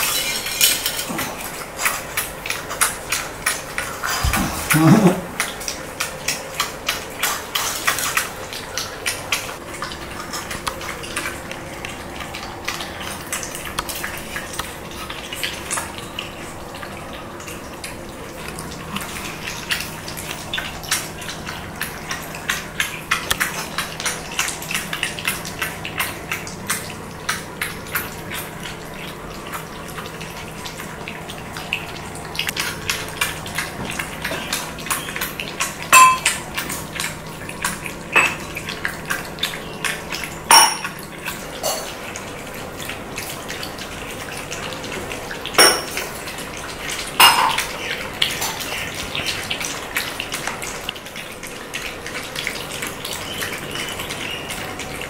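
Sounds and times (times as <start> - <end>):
puppies suckling clicks: 17.8 - 30.1.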